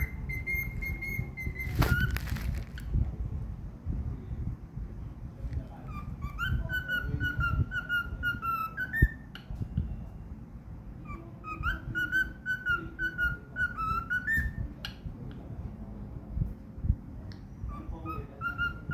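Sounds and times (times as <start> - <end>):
cockatiel whistling: 0.0 - 2.3, 5.9 - 9.5, 11.0 - 15.0, 17.7 - 18.9.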